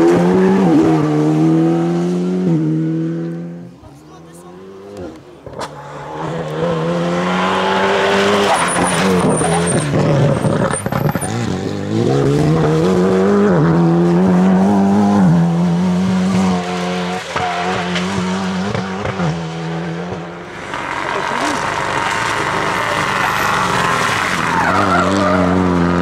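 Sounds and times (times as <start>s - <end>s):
rally car engine revving: 0.0s - 26.0s
high-pitched squeal: 7.4s - 11.4s.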